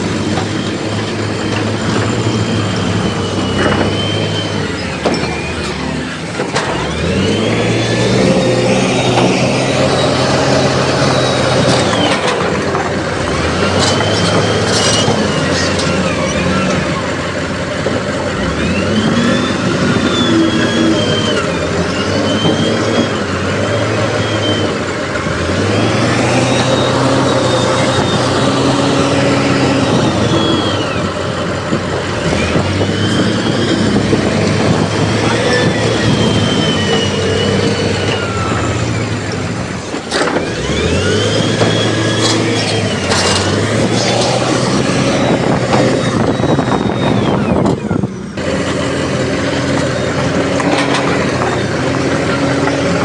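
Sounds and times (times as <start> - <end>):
diesel engine revving: 0.0 - 53.0
metal clank: 41.6 - 44.6.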